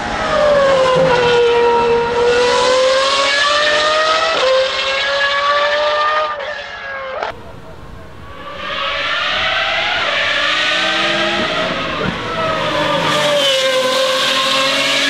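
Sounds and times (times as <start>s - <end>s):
sports car engine at high revs: 9.1s - 15.0s.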